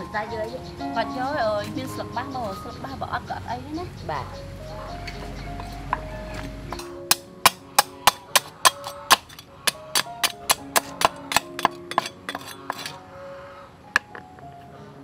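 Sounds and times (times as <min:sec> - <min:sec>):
cleaver chopping on wooden board: 0:05.9 - 0:13.0.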